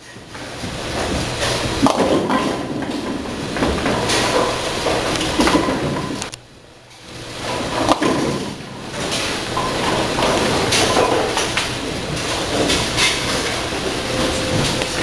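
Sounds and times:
bowling balls rolling: 0.0 - 15.0
pinsetter machinery knocking: 0.7 - 6.3.

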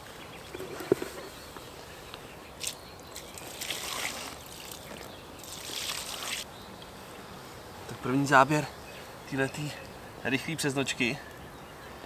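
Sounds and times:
water pouring and splashing: 2.6 - 6.4.

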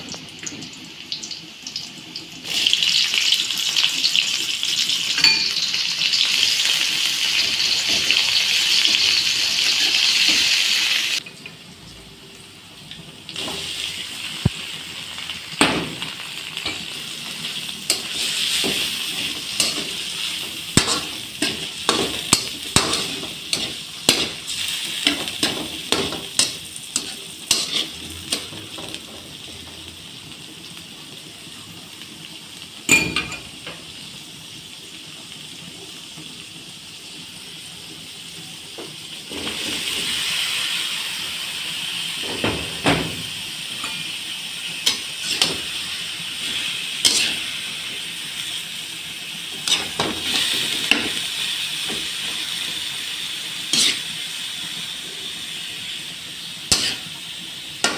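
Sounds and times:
food sizzling in oil: 0.0 - 57.9
metal spatula scraping and clinking: 17.9 - 20.0, 20.8 - 28.5, 44.8 - 45.6, 47.0 - 47.4, 49.6 - 51.1, 53.7 - 54.1, 56.7 - 57.1.

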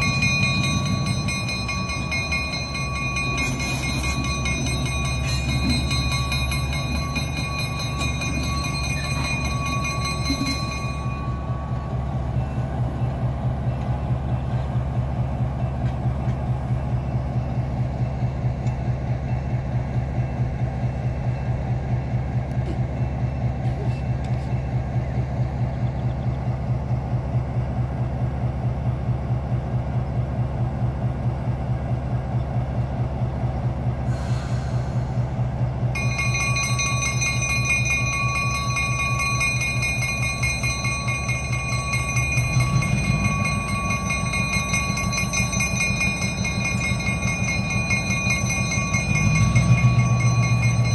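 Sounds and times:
locomotive bell ringing: 0.0 - 22.2, 35.2 - 50.9
diesel locomotive throbbing: 0.0 - 50.9.

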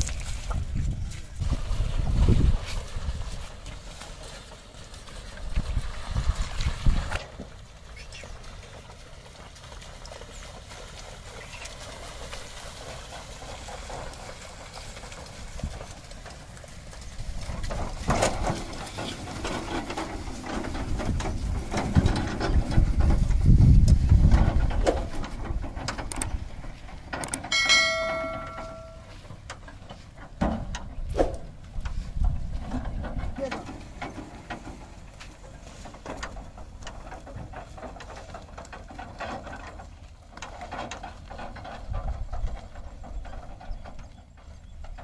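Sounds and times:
low rumble of passing cart: 0.0 - 40.4
cart rattling: 0.0 - 45.0
hoof steps: 0.0 - 45.0
short ringing tone: 27.5 - 29.1.

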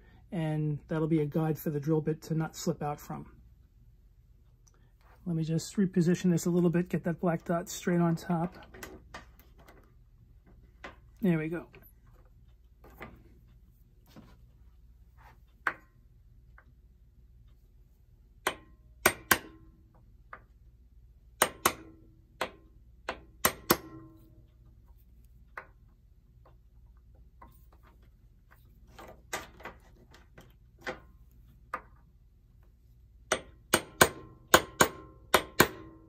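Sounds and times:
hammer tapping on metal: 18.4 - 20.5, 21.4 - 24.3, 33.3 - 36.0.

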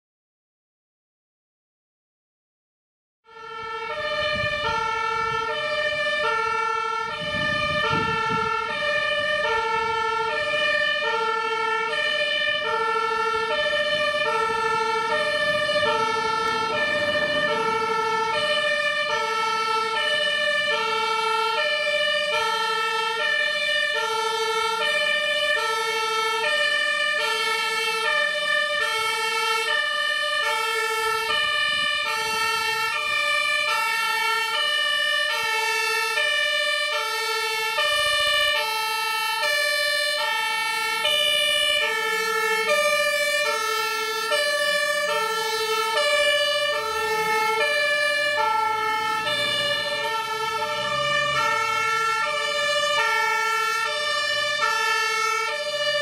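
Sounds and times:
two-tone fire engine siren: 3.2 - 56.0.

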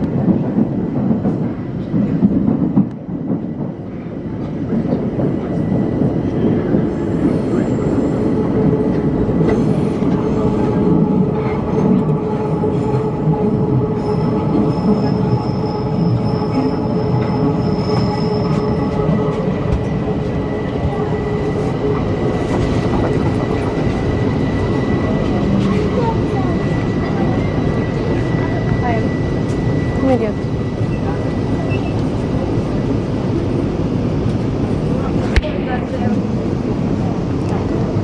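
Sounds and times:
train wheels rumbling on rails: 0.0 - 38.0
high brake squeal: 14.0 - 19.0, 29.6 - 32.1.

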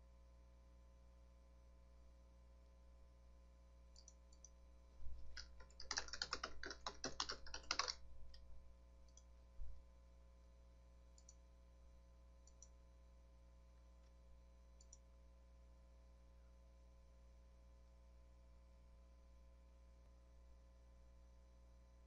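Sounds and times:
mouse clicks: 4.0 - 4.6, 11.2 - 11.4, 12.4 - 12.7, 14.8 - 15.0
typing on computer keyboard: 5.3 - 8.0.

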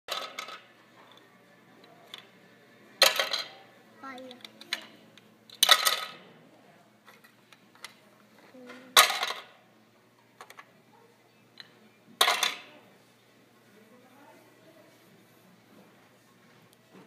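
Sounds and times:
plastic bricks clattering into tray: 0.1 - 0.7, 5.5 - 6.2, 8.9 - 9.5.

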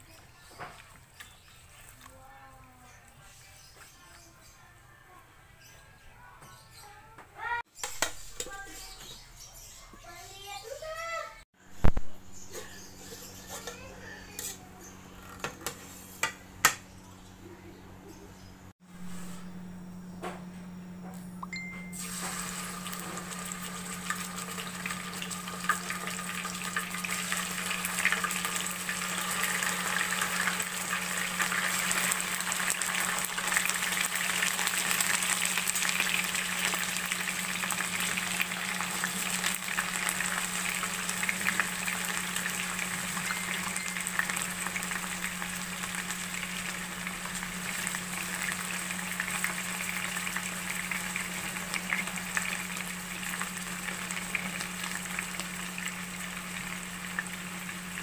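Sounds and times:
fork turning food in pan: 12.4 - 16.8
chicken sizzling in hot oil: 22.0 - 58.0.

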